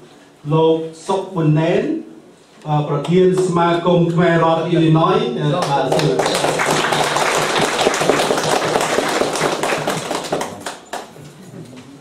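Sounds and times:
small audience clapping: 5.5s - 11.9s.

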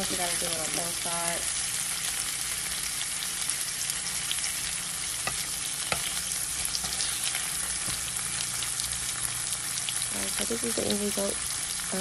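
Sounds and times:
meat sizzling in frying pan: 0.0s - 12.0s.

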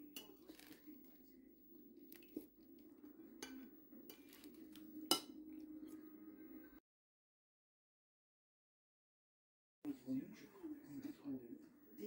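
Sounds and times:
utensil crackling on meringue: 0.0s - 6.0s.

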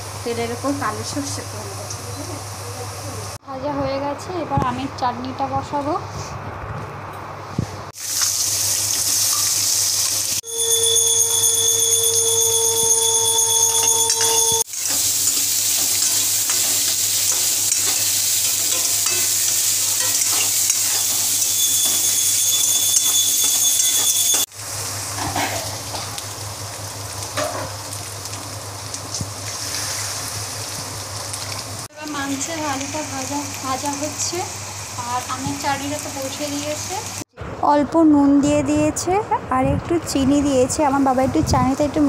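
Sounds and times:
oil sizzling with vegetables frying: 0.0s - 3.4s, 7.9s - 37.3s
steady whine: 10.4s - 14.7s, 20.7s - 24.5s
metal spoon scraping a pan: 10.5s - 24.5s.

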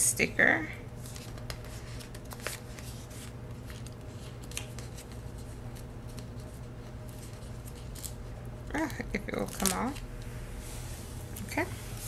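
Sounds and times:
low steady hum: 0.0s - 12.0s
paper rustling: 1.0s - 8.3s.

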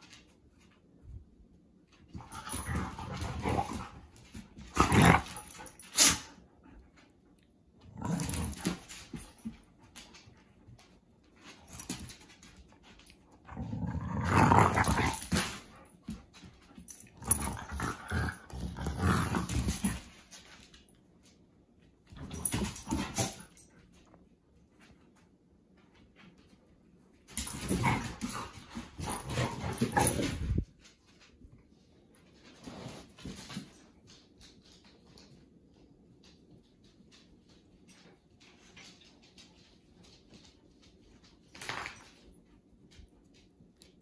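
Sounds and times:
dogs scuffling: 0.0s - 7.0s, 7.9s - 43.6s
dogs play growling: 2.0s - 7.1s, 7.8s - 10.2s, 11.4s - 20.7s, 22.0s - 23.7s, 27.3s - 30.8s, 32.5s - 33.7s.

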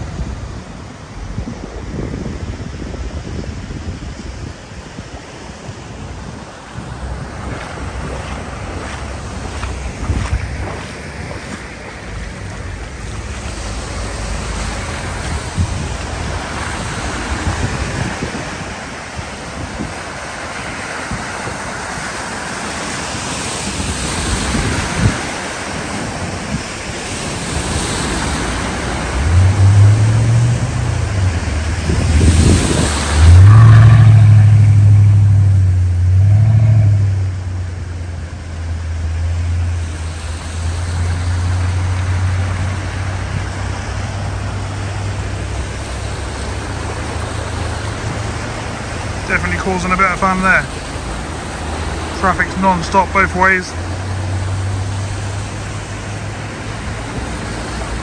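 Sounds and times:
tyres splashing through floodwater: 0.0s - 58.0s
car engine passing: 6.6s - 58.0s.

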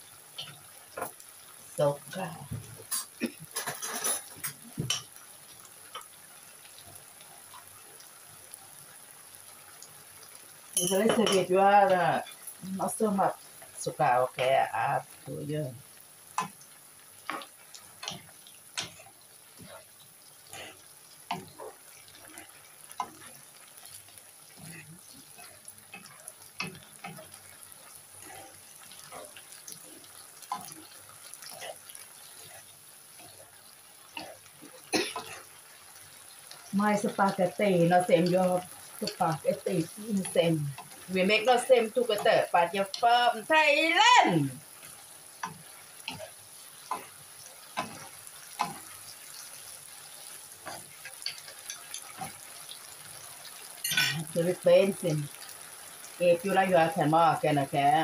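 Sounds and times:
faint sizzle in frying pan: 0.0s - 58.0s
faint steady hiss: 0.0s - 58.0s
spatula scraping pan: 2.9s - 5.1s.

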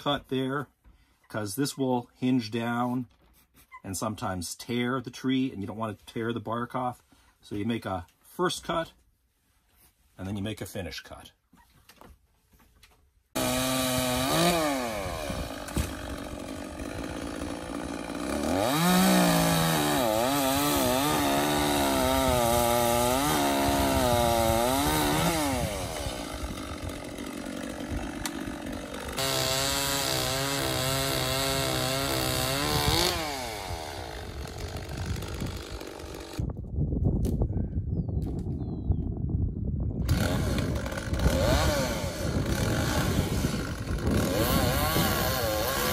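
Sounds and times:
chainsaw cutting a branch: 13.4s - 36.5s, 40.0s - 45.9s.

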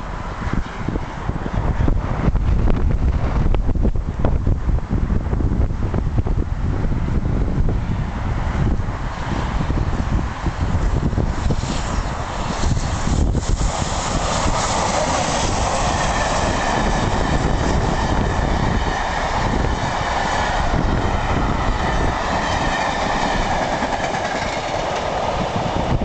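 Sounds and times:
steam locomotive passing: 0.0s - 26.0s
wind buffeting microphone: 0.0s - 26.0s
train wheels clattering on rails: 11.6s - 26.0s.

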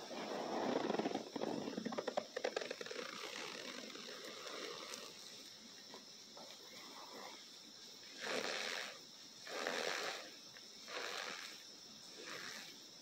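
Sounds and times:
powder sifting hiss: 6.8s - 13.0s.

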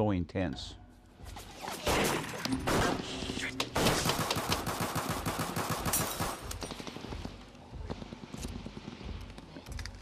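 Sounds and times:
rapid gunfire: 3.8s - 6.4s.

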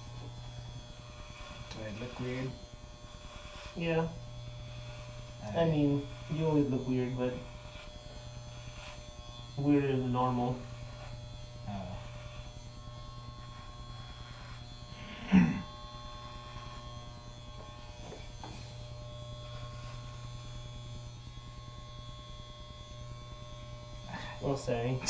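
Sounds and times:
electric hair clippers buzzing: 0.0s - 25.0s.

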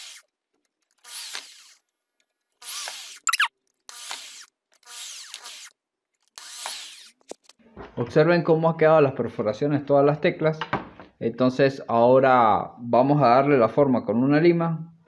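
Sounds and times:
electric drill boring plastic: 0.0s - 0.3s, 0.9s - 1.9s, 2.6s - 7.3s.

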